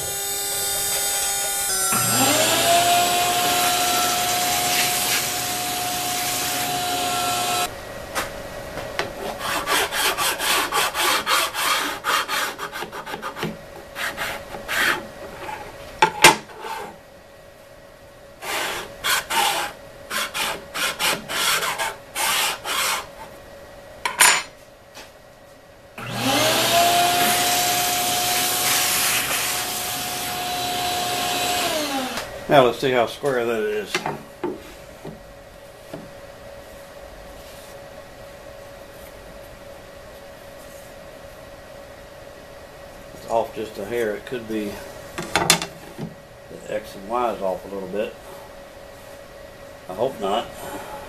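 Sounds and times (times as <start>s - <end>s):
shop vacuum whining: 0.0s - 7.7s, 26.0s - 32.7s
file rubbing along wood edge: 2.2s - 7.7s, 9.2s - 15.6s, 18.4s - 23.1s.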